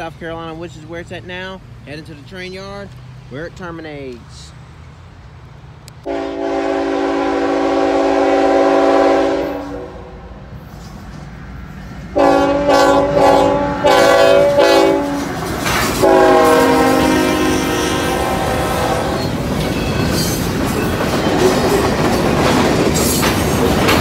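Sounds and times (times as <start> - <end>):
freight cars rumbling on rails: 0.0 - 24.0
locomotive air horn blasts: 6.0 - 10.2, 12.2 - 15.3, 16.0 - 19.3.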